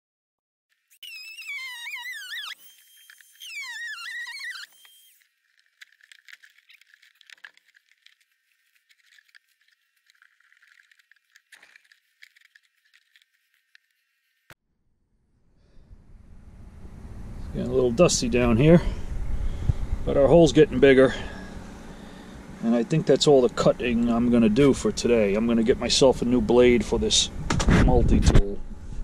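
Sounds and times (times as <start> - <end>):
oscillating multi-tool whine: 0.8 - 14.6
faint scratching and crackling: 1.0 - 14.6.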